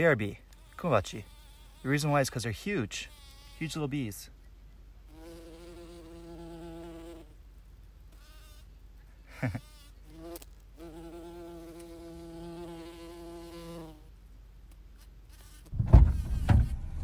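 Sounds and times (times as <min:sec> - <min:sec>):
bee buzzing in flight: 0:00.6 - 0:02.1, 0:05.1 - 0:07.4, 0:09.4 - 0:14.1, 0:15.3 - 0:16.8.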